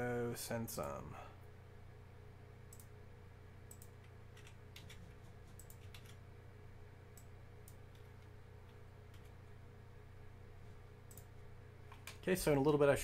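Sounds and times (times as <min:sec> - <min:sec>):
steady low hum: 0:00.0 - 0:13.0
keyboard and mouse clicks: 0:03.7 - 0:06.2, 0:11.1 - 0:11.3, 0:11.9 - 0:12.8.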